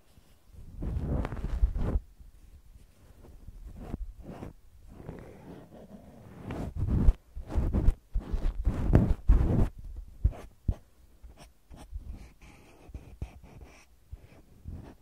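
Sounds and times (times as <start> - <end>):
cotton swab scraping microphone: 0.0 - 2.1, 2.8 - 10.8, 11.4 - 15.0
cotton pad rubbing microphone: 0.6 - 2.0, 3.0 - 10.8, 14.2 - 15.0.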